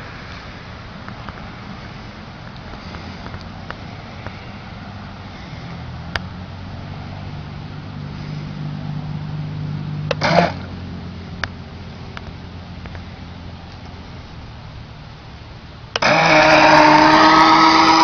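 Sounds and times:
boat rushing across water: 0.0s - 18.0s
small electric motor humming: 16.0s - 18.0s.

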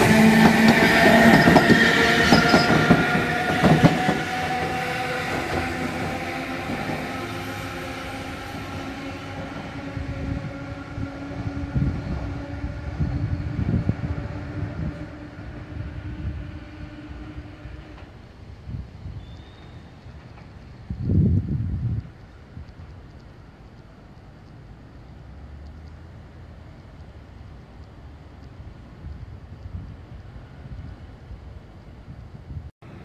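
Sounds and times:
tram motor: 0.0s - 18.3s
tram wheels clattering: 0.0s - 18.3s, 19.3s - 21.3s.

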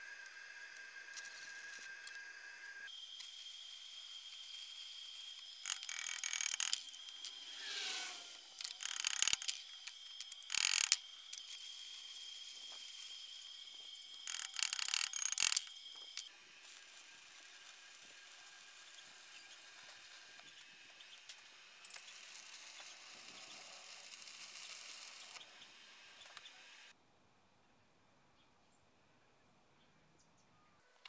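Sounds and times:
chipping hammer tapping metal: 5.6s - 7.2s, 8.6s - 11.0s, 14.2s - 16.3s.

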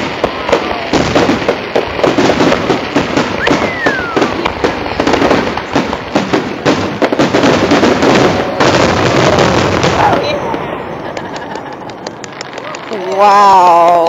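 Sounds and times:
fireworks bursting: 0.0s - 14.0s
falling firework whistle: 3.2s - 4.5s.

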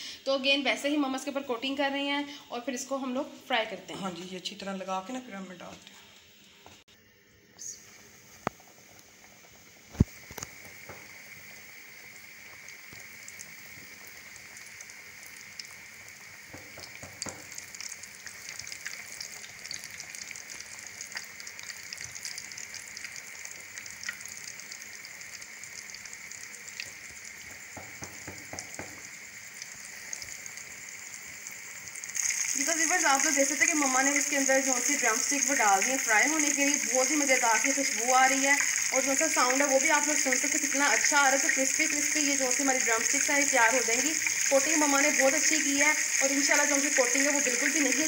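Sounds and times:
chicken deep-frying in hot oil: 6.4s - 48.0s
crackling pops of oil: 9.9s - 11.2s, 16.5s - 17.8s.

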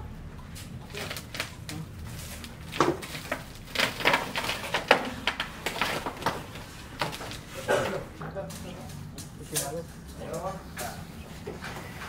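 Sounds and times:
bucket scraping soil and rubble: 0.9s - 8.6s.

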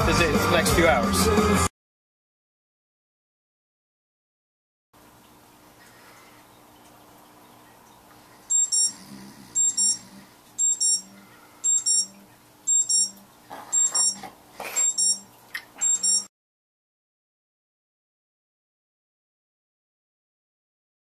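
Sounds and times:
alarm clock beeping: 8.5s - 9.0s, 9.6s - 14.2s, 14.8s - 16.3s.

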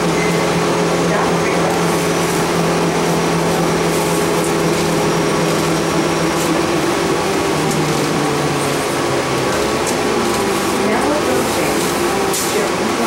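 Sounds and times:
bus engine droning: 0.0s - 13.0s.

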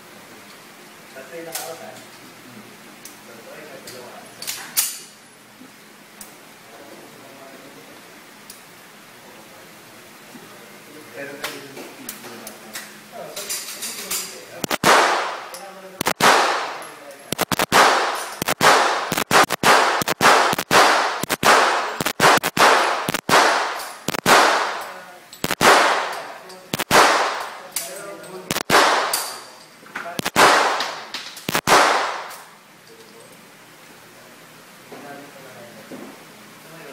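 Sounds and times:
pistol shots echoing indoors: 14.7s - 27.6s, 28.5s - 29.5s, 30.2s - 32.5s.

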